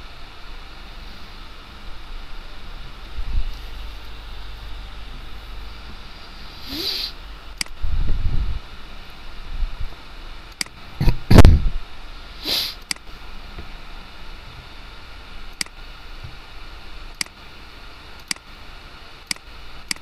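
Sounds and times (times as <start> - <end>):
background hiss: 0.0 - 20.0
short hiss: 6.4 - 7.2, 12.4 - 13.0
computer mouse clicking: 17.2 - 17.4, 19.3 - 20.0.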